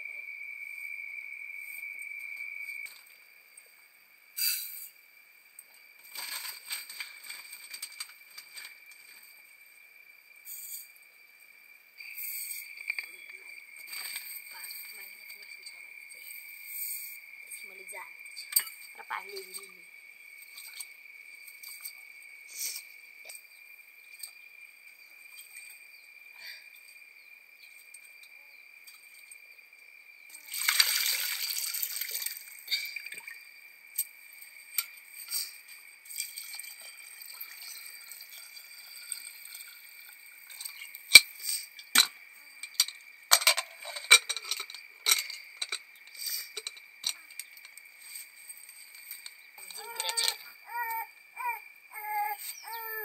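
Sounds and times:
liquid pouring: 0:30.4 - 0:33.3, 0:36.1 - 0:40.8.

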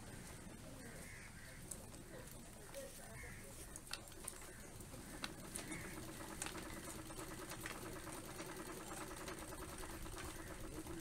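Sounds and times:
sewing machine whirring: 0:04.3 - 0:11.0.

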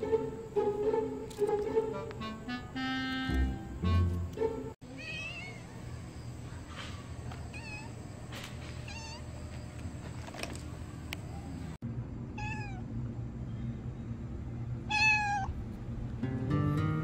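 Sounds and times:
background music: 0:00.0 - 0:04.8
cat meowing: 0:04.9 - 0:05.8, 0:07.5 - 0:08.0, 0:08.8 - 0:09.3, 0:12.4 - 0:12.8, 0:14.9 - 0:15.5.

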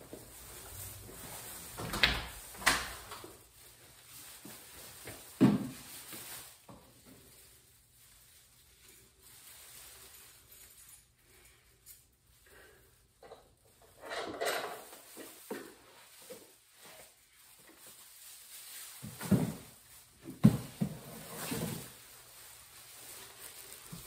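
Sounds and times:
plastic bags rustling: 0:00.0 - 0:14.0, 0:14.6 - 0:24.0
bags thudding on floor: 0:05.3 - 0:06.2, 0:19.0 - 0:22.0.

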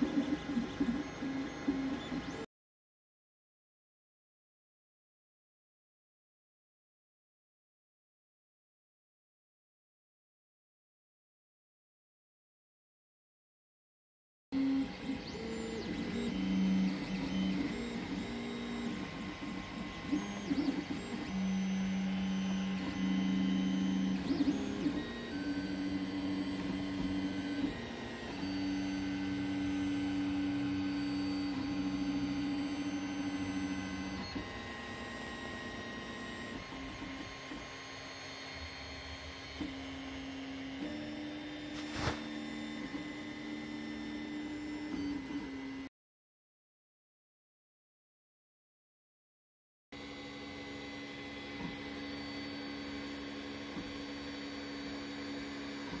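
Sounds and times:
stepper motor tones: 0:14.6 - 0:42.9.

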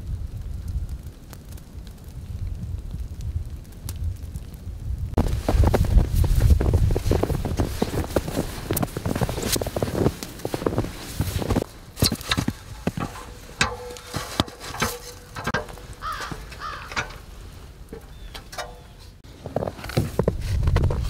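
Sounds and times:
knocks and clicks: 0:12.0 - 0:17.3
bird calling: 0:15.6 - 0:17.2, 0:17.9 - 0:19.2.

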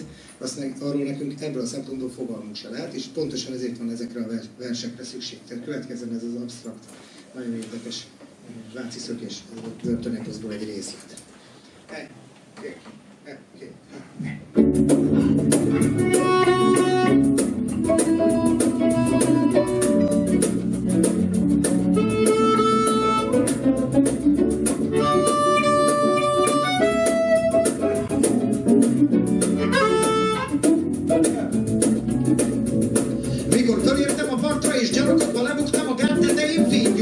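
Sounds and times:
guitar melody line: 0:14.5 - 0:37.0
strummed acoustic guitar: 0:14.6 - 0:37.0.

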